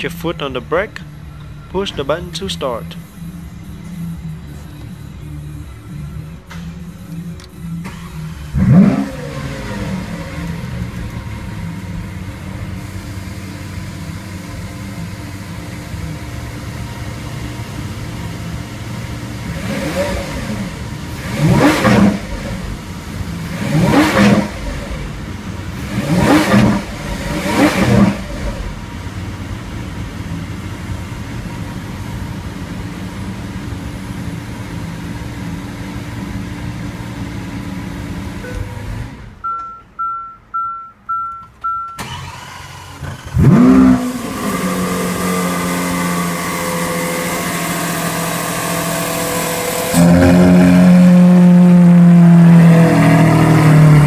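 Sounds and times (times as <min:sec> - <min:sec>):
engine revving: 0:00.0 - 0:39.4, 0:42.0 - 0:54.0
car engine idling: 0:00.0 - 0:54.0
high electronic beeps: 0:38.4 - 0:42.0.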